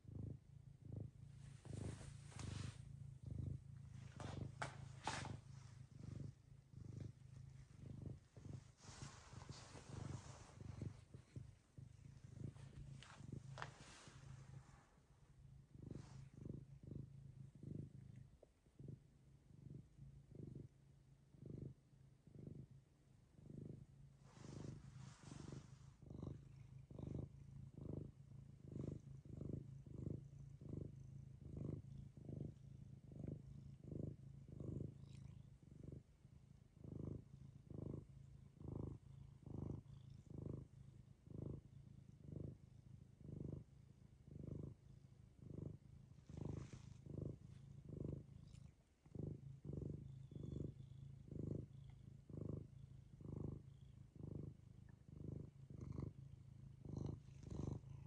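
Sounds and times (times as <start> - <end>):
cat purring: 0.0 - 58.0.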